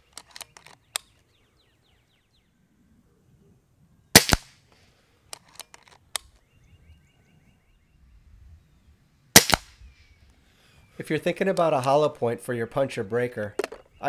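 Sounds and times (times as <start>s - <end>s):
rifle action clicks: 0.0s - 1.2s, 5.3s - 6.4s
air rifle shots: 4.2s - 4.6s, 9.3s - 9.8s.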